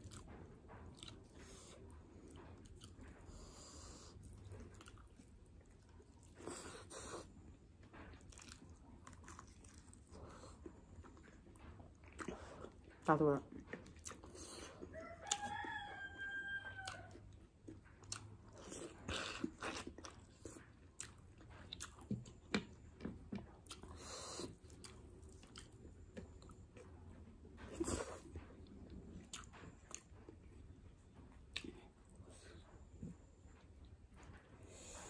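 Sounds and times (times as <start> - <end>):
person chewing crunchy food: 0.0 - 33.8
rooster crowing: 14.9 - 17.2.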